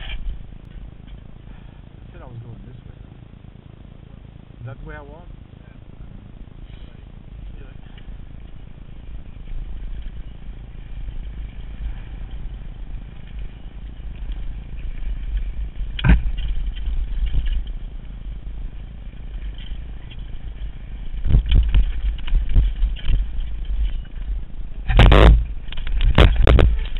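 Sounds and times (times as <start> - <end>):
bike chain and frame clattering: 0.0 - 2.1, 6.6 - 26.9
wind rumble on microphone: 0.0 - 26.9
hard knocks of bike: 6.6 - 26.9.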